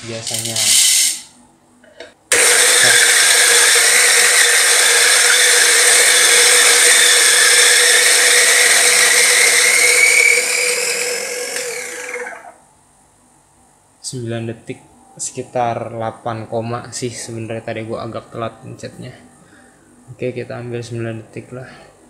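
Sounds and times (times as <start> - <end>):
electric coffee grinder grinding: 2.3 - 12.6.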